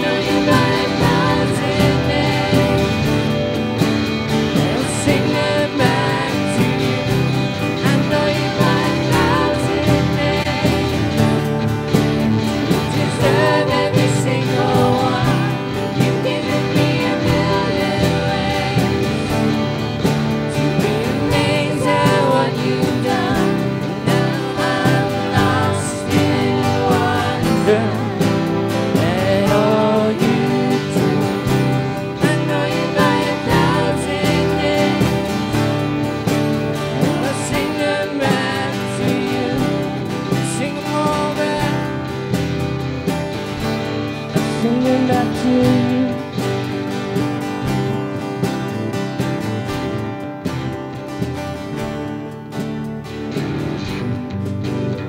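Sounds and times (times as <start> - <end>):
woman singing lead vocal: 0.0 - 3.6, 4.4 - 11.7, 12.6 - 19.7, 20.4 - 35.7, 37.0 - 42.3, 44.4 - 46.7
backing singers: 0.0 - 36.0, 36.8 - 42.3
electric and acoustic guitars: 0.0 - 55.0.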